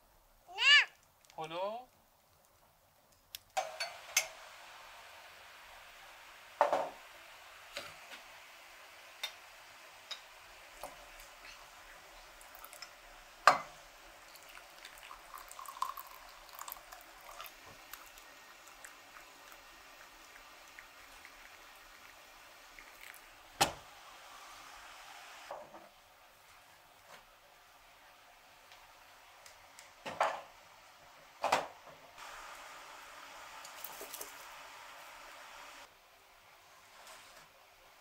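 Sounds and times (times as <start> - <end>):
water running into sink: 12.2 - 23.8
water pouring into glass: 12.4 - 12.9, 13.5 - 23.2.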